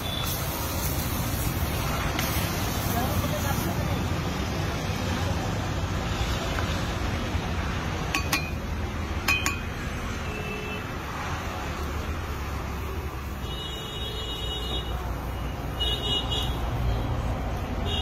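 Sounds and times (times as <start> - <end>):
street background rumble: 0.0 - 18.0
metal utensils clinking: 8.1 - 9.8.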